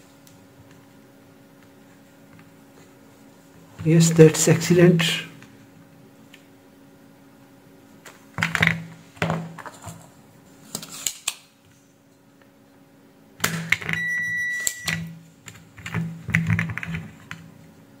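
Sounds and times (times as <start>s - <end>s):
high electronic beep: 14.0s - 15.0s.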